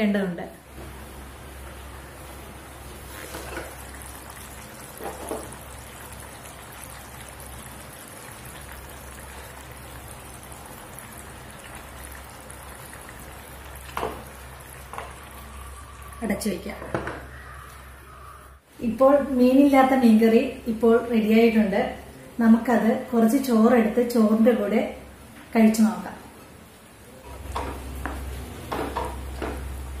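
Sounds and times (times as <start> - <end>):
curry simmering and bubbling: 1.8 - 16.2.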